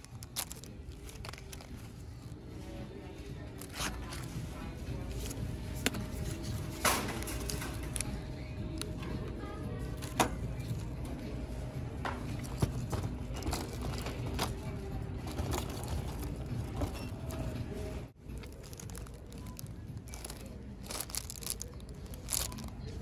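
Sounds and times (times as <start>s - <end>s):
crinkling plastic packaging: 0.0s - 2.4s, 18.2s - 23.0s
steady store hum: 0.0s - 23.0s.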